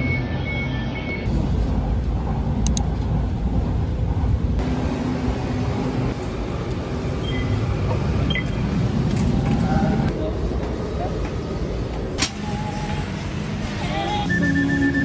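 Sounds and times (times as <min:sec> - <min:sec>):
vehicle rumble in motion: 0:00.0 - 0:15.0.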